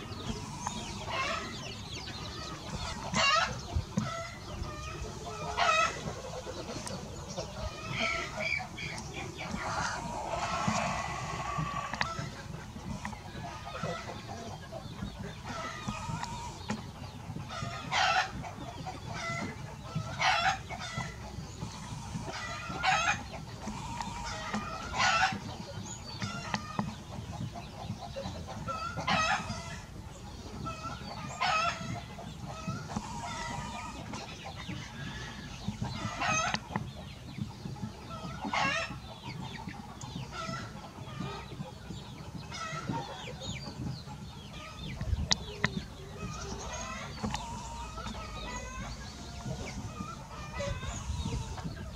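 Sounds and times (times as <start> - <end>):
chickens clucking: 0.0 - 51.9.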